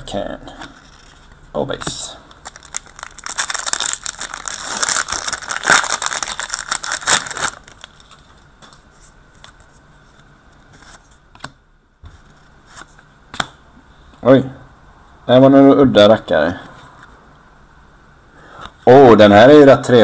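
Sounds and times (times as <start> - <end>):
card pack wrapper crinkling: 2.3 - 8.4.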